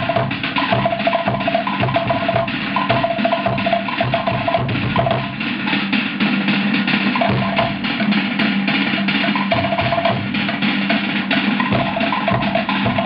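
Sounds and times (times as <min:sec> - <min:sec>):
deep bass drum: 0:11.6 - 0:13.0.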